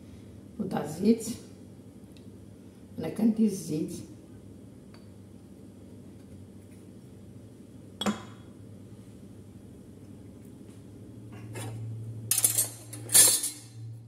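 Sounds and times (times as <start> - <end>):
dishes clinking and clattering: 11.4 - 13.8.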